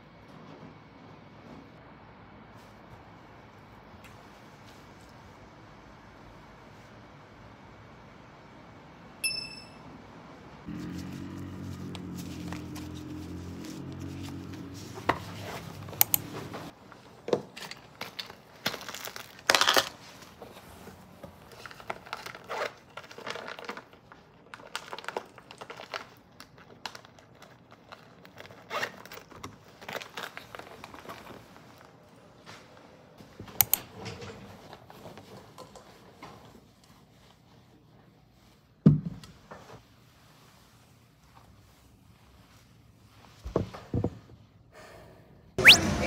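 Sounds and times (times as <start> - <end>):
plastic bag crinkling: 17.7 - 20.3, 21.6 - 31.8.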